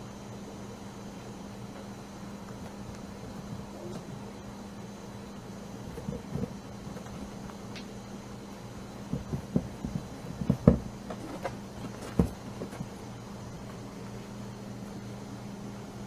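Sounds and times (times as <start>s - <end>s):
steady low hum: 0.0s - 16.0s
rabbits gnawing carrot: 5.2s - 14.1s.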